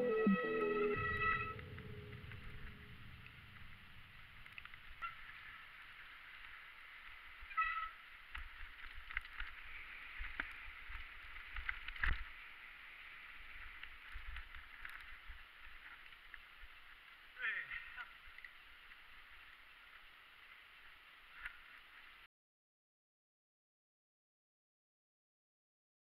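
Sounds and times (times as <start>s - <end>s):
wind and tyres on snow: 2.4s - 19.9s.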